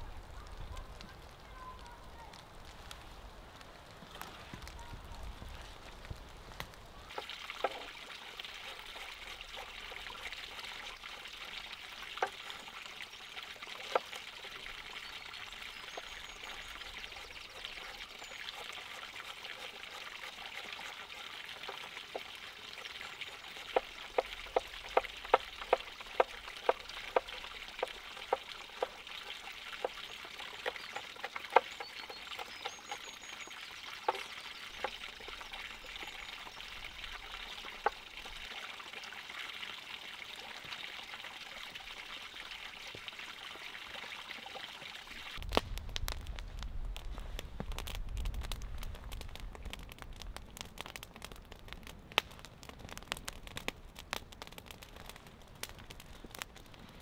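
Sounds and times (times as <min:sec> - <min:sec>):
crackling pops: 0:00.0 - 0:07.8, 0:45.4 - 0:57.0
beef sizzling on a grill: 0:00.0 - 0:38.7.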